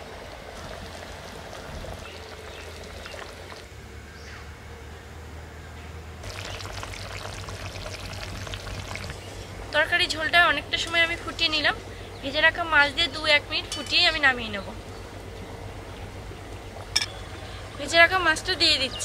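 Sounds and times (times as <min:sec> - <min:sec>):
gravy bubbling in a pan: 0:00.0 - 0:03.7, 0:06.2 - 0:09.6.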